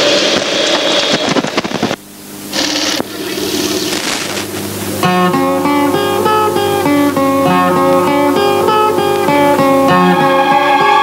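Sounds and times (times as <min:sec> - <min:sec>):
plucked string instrument: 0:04.8 - 0:11.0.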